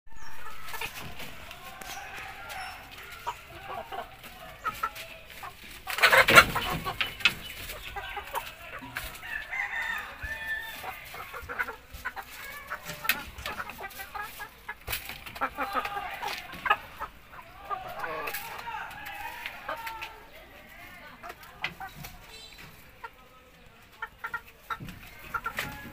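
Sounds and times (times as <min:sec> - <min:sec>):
chickens clucking: 0:00.1 - 0:25.9
rooster crowing: 0:09.2 - 0:10.9.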